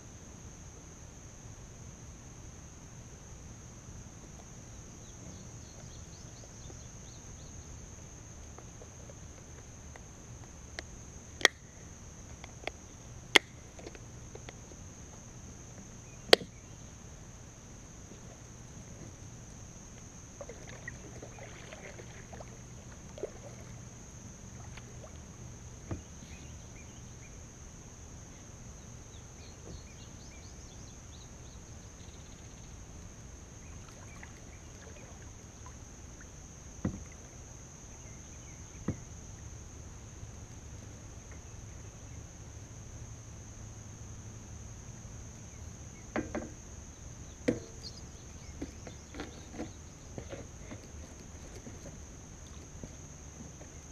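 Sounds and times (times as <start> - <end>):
steady low hum: 0.0 - 53.9
paddle knocking plastic hull: 25.8 - 26.1, 36.8 - 37.2, 46.1 - 46.6, 47.4 - 47.9.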